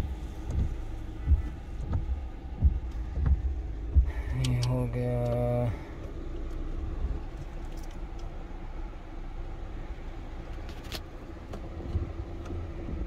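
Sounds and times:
car engine idling: 0:00.0 - 0:13.0
climate-control knob clicks: 0:04.3 - 0:05.5.

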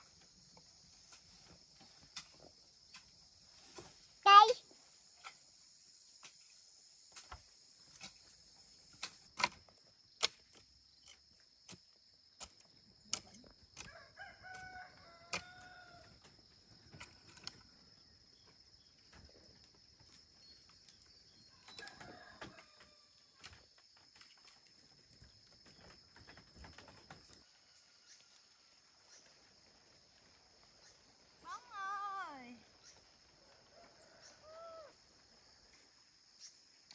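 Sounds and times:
rooster crowing: 0:13.9 - 0:16.1, 0:33.4 - 0:35.0.

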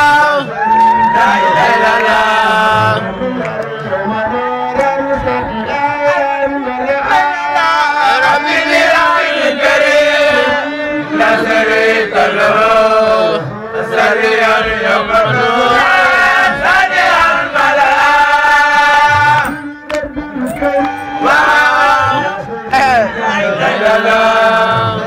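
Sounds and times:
man chanting into a microphone: 0:01.2 - 0:09.2, 0:18.8 - 0:25.0.

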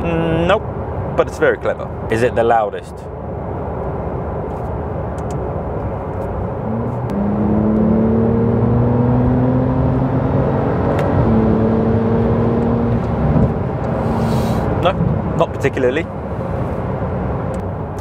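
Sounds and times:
road noise: 0:00.0 - 0:18.0
car engine accelerating: 0:06.1 - 0:15.4.

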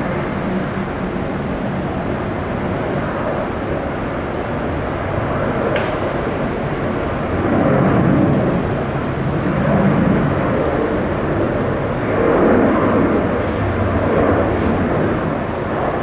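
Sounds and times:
jet engines rumbling: 0:00.0 - 0:16.0.

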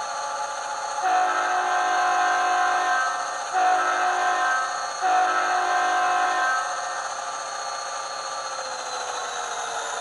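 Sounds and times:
simulated diesel engine: 0:00.0 - 0:10.0
diesel air horn blasts: 0:01.0 - 0:06.7.

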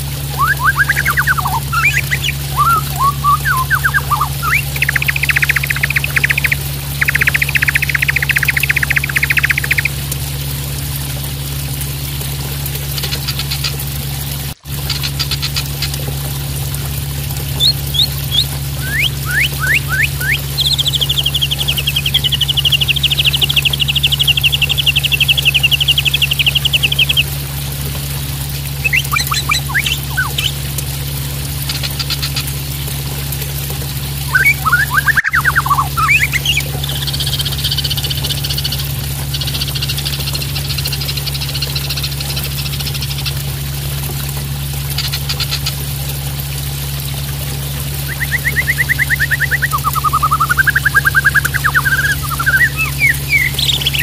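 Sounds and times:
splashing water: 0:00.0 - 0:54.0
bird trilling and calling: 0:00.3 - 0:10.0, 0:17.6 - 0:27.3, 0:28.8 - 0:30.6, 0:34.3 - 0:37.9, 0:48.0 - 0:54.0.

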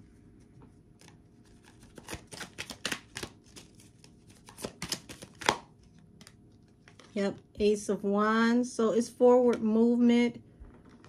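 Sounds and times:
cards being shuffled: 0:00.4 - 0:07.2
sharp card snap: 0:04.5 - 0:05.7.

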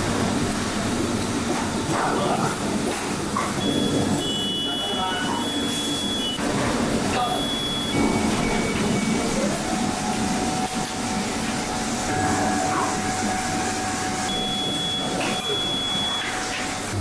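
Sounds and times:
machine hum: 0:00.0 - 0:17.0
short electronic beeps: 0:03.6 - 0:06.4, 0:07.2 - 0:09.3, 0:14.3 - 0:16.4
steady tone: 0:07.2 - 0:16.2.

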